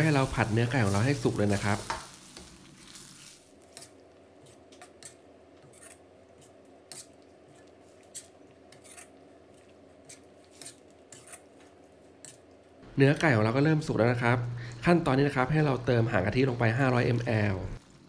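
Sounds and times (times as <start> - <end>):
faint steady hum: 11.7 - 18.0.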